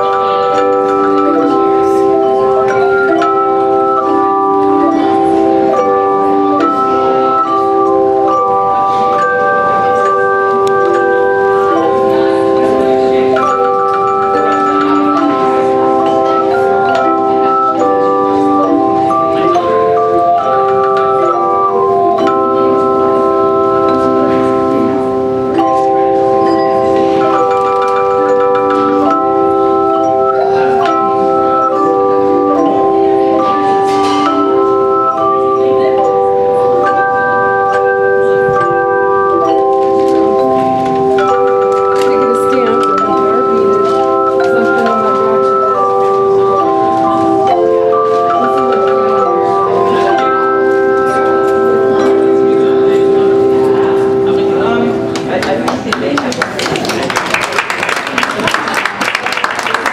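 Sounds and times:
handchime choir playing: 0.0 - 59.9.

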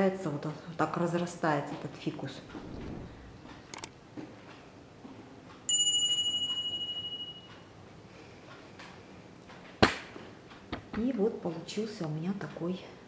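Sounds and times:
sharp click: 3.7 - 4.0
bright bell-like ding: 5.7 - 7.5.

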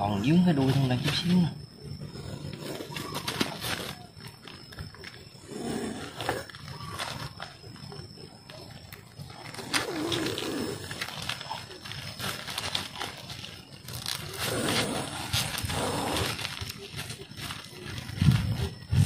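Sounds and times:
plastic bag crinkling: 6.4 - 18.9.

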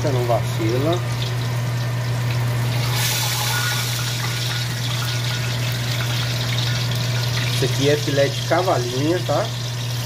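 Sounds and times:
fish fillets sizzling in oil: 0.2 - 10.0.

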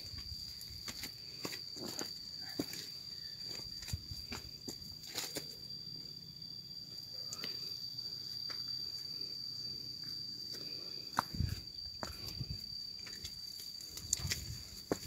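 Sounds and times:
high-pitched insect drone: 0.0 - 15.0
footsteps on dirt path: 0.2 - 2.9, 11.1 - 15.0.

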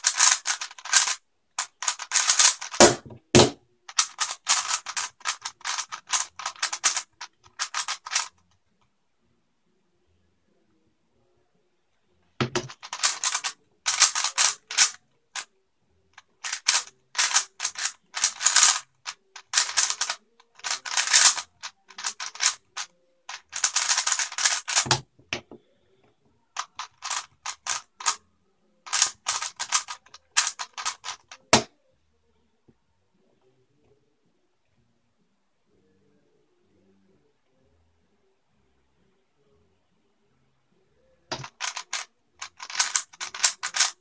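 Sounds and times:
plastic cube clicking: 0.0 - 8.4, 12.4 - 15.5, 16.2 - 25.0, 26.6 - 28.2, 28.9 - 31.7, 41.3 - 44.0.

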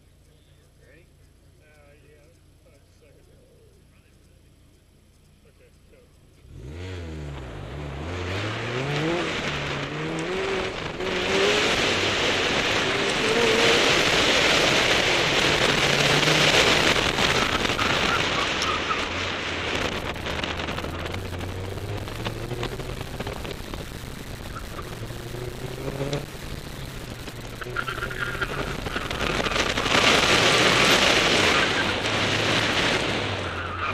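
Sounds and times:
car engine revving: 0.0 - 33.9
tyre and wind noise: 7.2 - 33.9.

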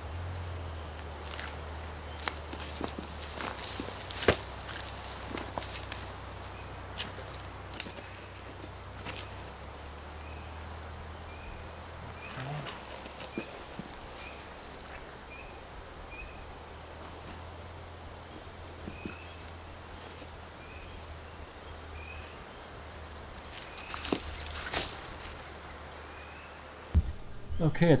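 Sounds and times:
outdoor background: 0.0 - 28.0
soil scraped by hand: 23.5 - 25.5.

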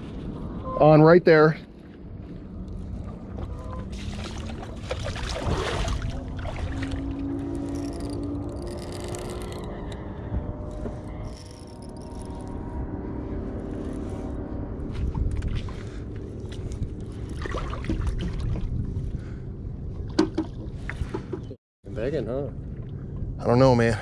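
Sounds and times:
wind rumbling on microphone: 0.0 - 24.0
water slapping boat hull: 1.7 - 7.8, 15.0 - 18.9, 20.1 - 21.6
small clicks and splashes: 3.8 - 9.8.

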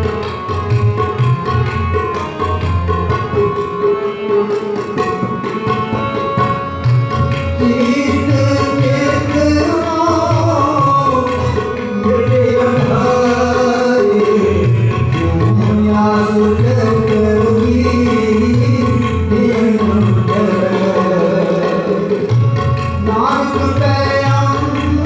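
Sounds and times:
harmoniums playing: 0.0 - 25.0
tabla strokes: 0.0 - 25.0
man singing: 7.5 - 22.3, 23.0 - 25.0.

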